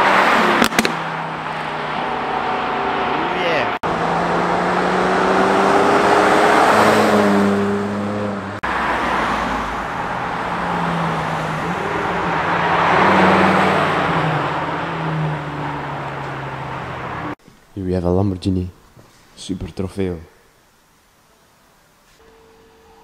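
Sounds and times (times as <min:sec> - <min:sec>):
cars driving past: 0:00.0 - 0:17.4.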